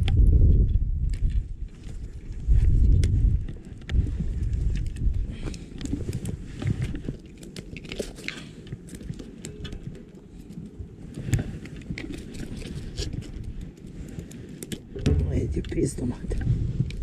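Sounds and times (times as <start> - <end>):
low rumble: 15.0 - 17.0.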